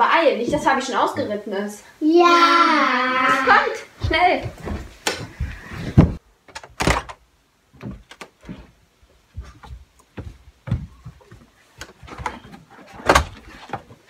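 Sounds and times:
shuffling of children: 2.3 - 6.2
knocks and thumps: 4.0 - 7.2, 7.8 - 14.0.

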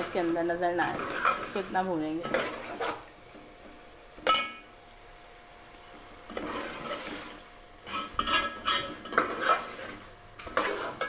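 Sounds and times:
metal spoon scraping pot: 0.8 - 3.1, 6.3 - 11.0.

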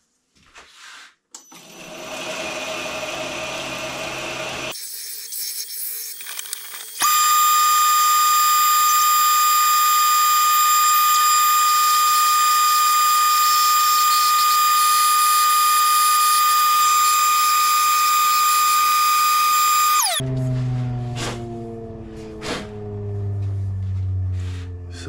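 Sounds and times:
belt grinder whining: 1.5 - 20.2.

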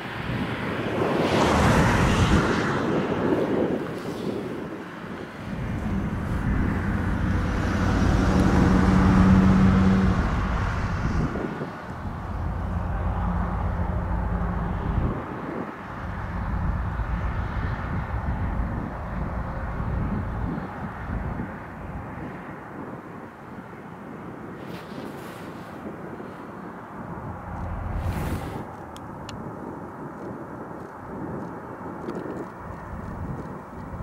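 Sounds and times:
diesel locomotive engine rumbling: 5.4 - 15.2, 15.8 - 22.0, 26.9 - 29.3.

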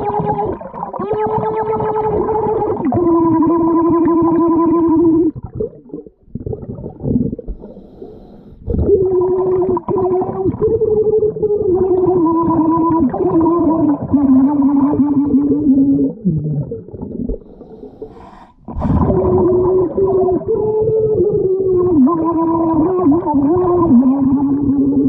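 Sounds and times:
woman singing underwater: 0.0 - 7.3, 8.7 - 17.3, 18.1 - 25.0.

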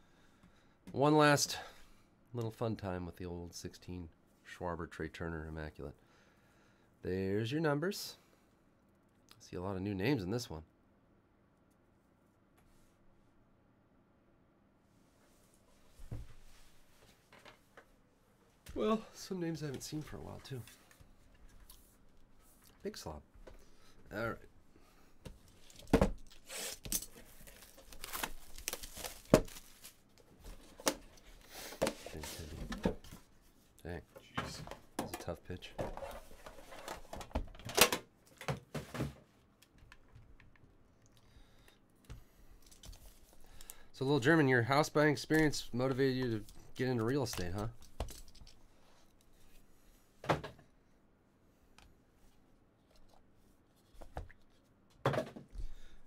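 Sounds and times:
plastic wrap crinkling: 25.6 - 30.2.

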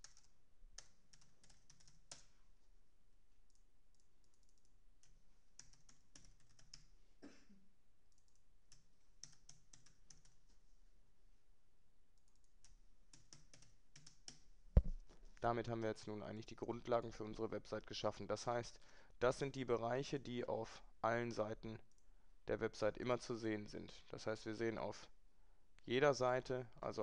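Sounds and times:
faint computer keyboard typing: 0.0 - 2.4, 3.4 - 6.9, 8.1 - 10.6, 12.2 - 15.0, 21.8 - 22.1.

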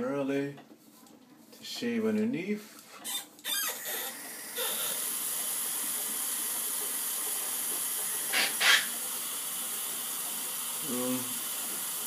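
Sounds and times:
running tap hissing: 3.0 - 12.0
razor scraping stubble: 8.2 - 9.0.

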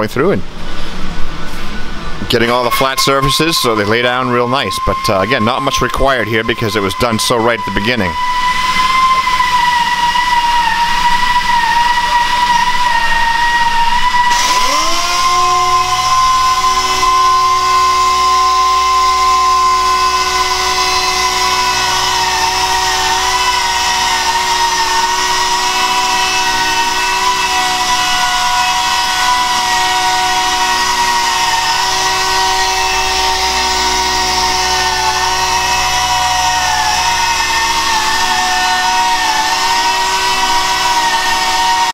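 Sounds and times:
air sander whining: 1.4 - 41.9.

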